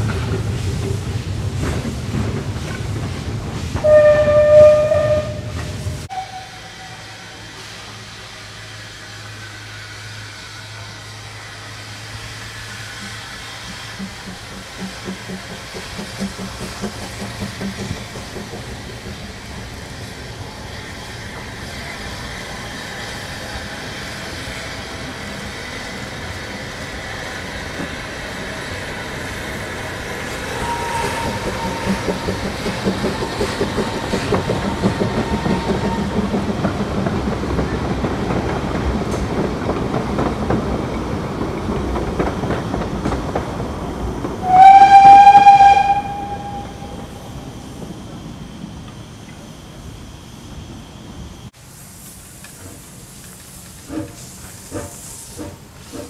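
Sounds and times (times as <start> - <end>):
steam locomotive whistle: 3.8 - 7.6, 30.5 - 32.5, 44.4 - 47.4
train carriages clattering over rails: 12.8 - 20.6, 29.5 - 48.2.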